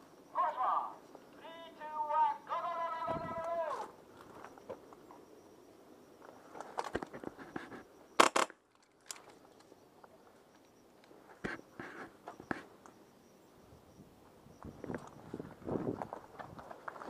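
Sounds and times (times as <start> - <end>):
loud sharp cracks: 8.2 - 8.6.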